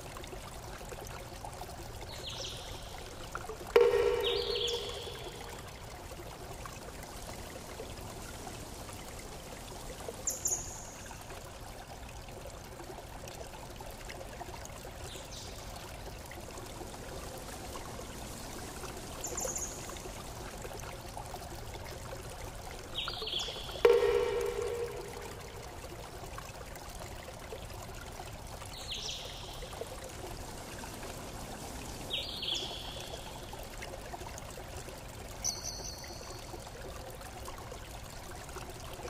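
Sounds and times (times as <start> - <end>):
running water rushing: 0.0 - 39.0
brief high-pitched sounds: 23.9 - 25.6.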